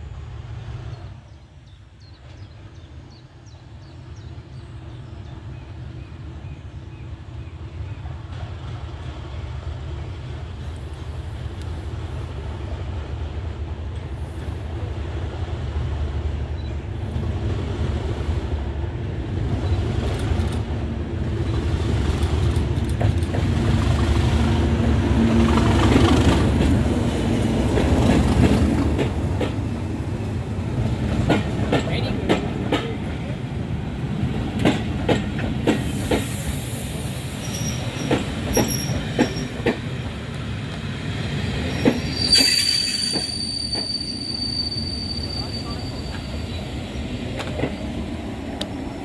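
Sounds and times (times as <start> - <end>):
diesel locomotive engine: 0.0 - 49.0
train wheels clicking over rail joints: 21.8 - 24.1, 25.4 - 29.8, 30.8 - 33.2, 34.4 - 41.0.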